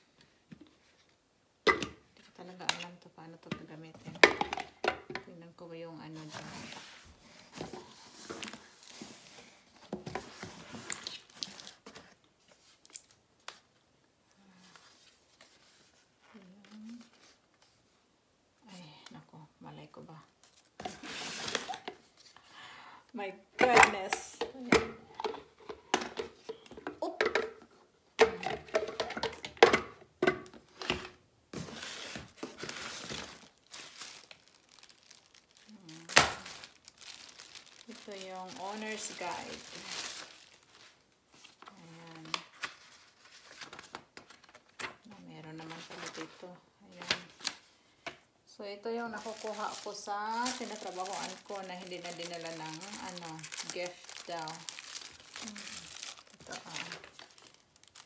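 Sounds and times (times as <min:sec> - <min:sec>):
cardboard and packaging rustling: 0:06.0 - 0:13.8, 0:14.6 - 0:17.9, 0:20.4 - 0:22.4, 0:30.5 - 0:48.2, 0:49.0 - 0:58.0
plastic parts clattering: 0:49.2 - 0:58.0.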